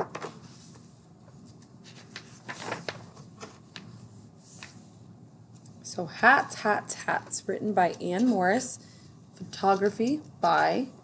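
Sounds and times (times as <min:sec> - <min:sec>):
book pages turning: 0:00.0 - 0:04.9.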